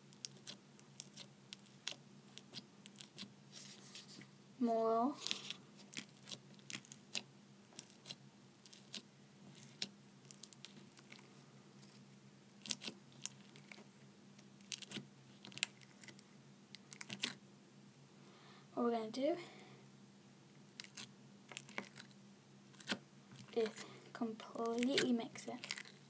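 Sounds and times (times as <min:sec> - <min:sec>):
foam-bead slime crackling: 0:00.2 - 0:03.7, 0:05.2 - 0:11.9, 0:14.6 - 0:16.2, 0:22.7 - 0:26.0.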